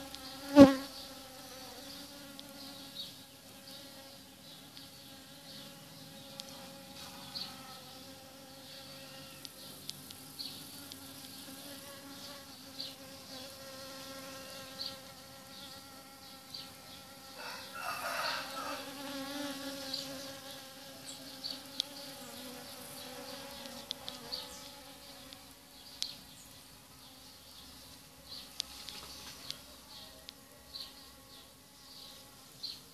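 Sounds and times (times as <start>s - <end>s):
bees buzzing: 0.0s - 4.2s, 4.8s - 26.2s.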